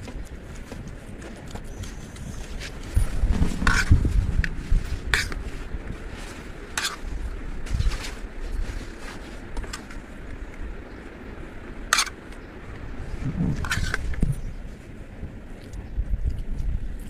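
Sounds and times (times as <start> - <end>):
low rumble: 1.8 - 11.8, 12.4 - 17.0
metal spoon scraping metal pan: 6.8 - 7.0, 11.9 - 12.1.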